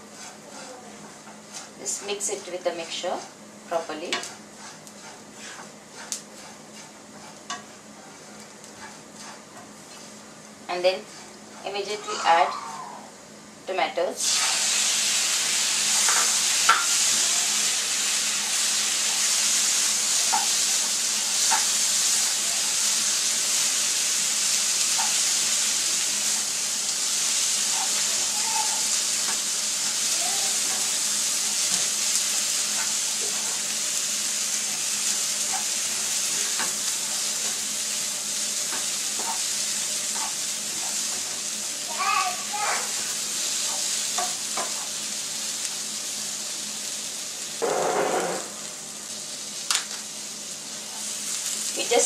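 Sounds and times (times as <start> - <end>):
food sizzling in oil: 0.0 - 13.0, 14.2 - 52.0
spoon scraping and tapping pan: 4.1 - 10.0.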